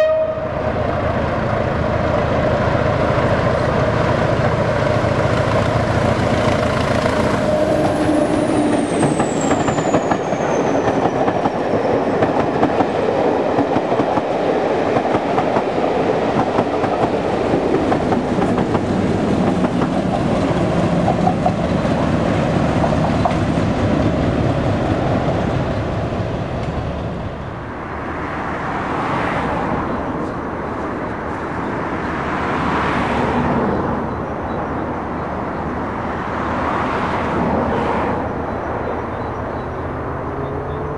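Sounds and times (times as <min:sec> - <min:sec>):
diesel locomotive passing: 0:00.0 - 0:40.9
coaches clacking over rail joints: 0:01.4 - 0:27.1.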